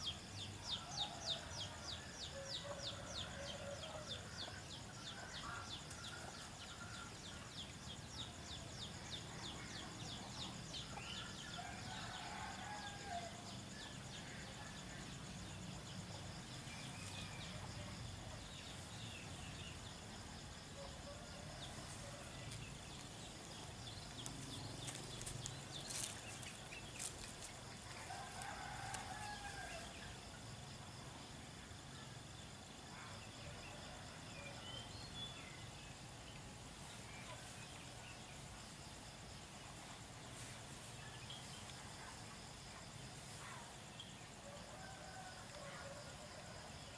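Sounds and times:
high insect drone: 0:00.0 - 0:46.9.

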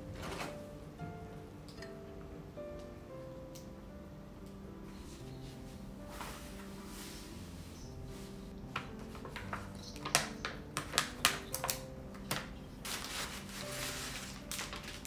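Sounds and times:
soft background music: 0:00.0 - 0:15.0
paper rustle: 0:05.0 - 0:15.0
paper envelope crackling: 0:08.2 - 0:15.0.

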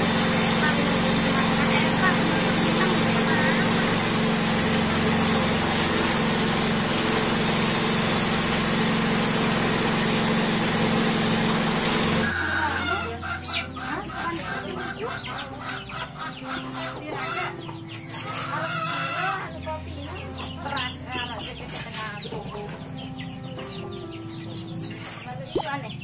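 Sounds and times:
chickens clucking: 0:00.0 - 0:08.2, 0:12.0 - 0:26.0
machine drone: 0:00.0 - 0:12.4.

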